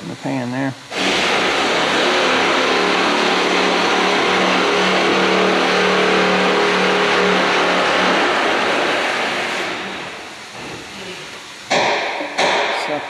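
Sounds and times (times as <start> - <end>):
suction hose sucking oil: 0.9 - 10.2
low hum: 1.3 - 10.5.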